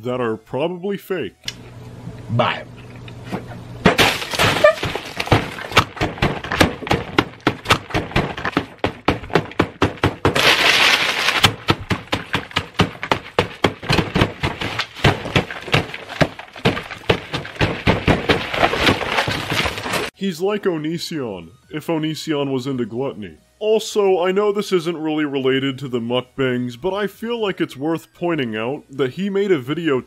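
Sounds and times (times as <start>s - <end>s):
food and chips being smashed: 3.8s - 20.1s.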